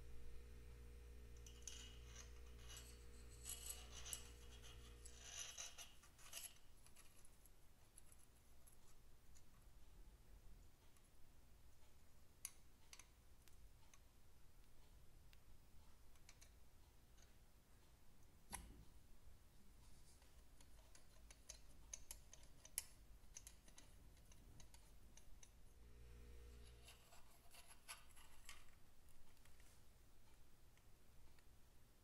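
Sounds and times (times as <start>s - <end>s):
metallic clicks of pushrods: 20.2s - 25.6s.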